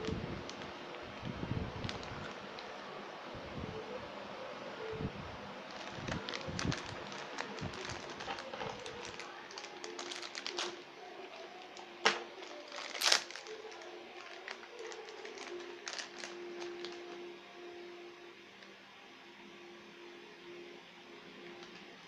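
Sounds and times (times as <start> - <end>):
plastic bag crinkling: 0.0 - 2.8, 5.7 - 17.3.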